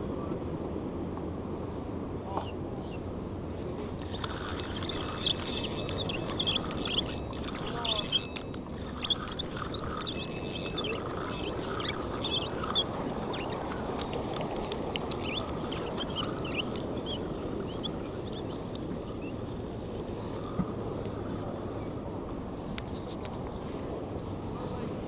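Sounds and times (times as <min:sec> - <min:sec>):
wind: 0:00.0 - 0:25.0
spinning reel squeaking: 0:04.0 - 0:21.9.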